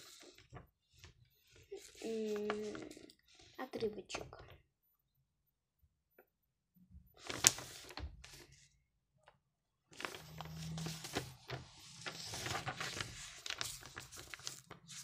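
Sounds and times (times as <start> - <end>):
paper pages rustling: 0.0 - 3.5, 7.2 - 8.7, 9.9 - 15.0.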